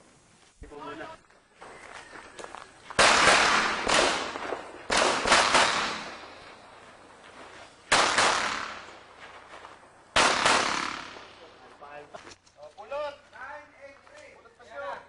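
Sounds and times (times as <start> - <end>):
pistol shots with echo: 3.0 - 6.6, 7.9 - 9.1, 10.2 - 11.5.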